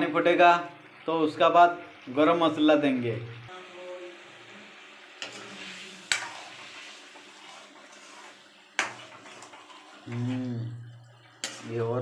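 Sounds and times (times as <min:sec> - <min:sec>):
curry bubbling sizzle: 0:00.0 - 0:12.0
utensil scraping pan: 0:05.2 - 0:10.6, 0:11.4 - 0:11.9.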